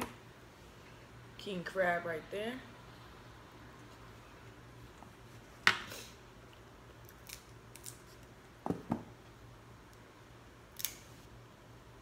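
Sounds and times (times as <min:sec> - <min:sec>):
crab shell cracking: 0:07.0 - 0:08.0.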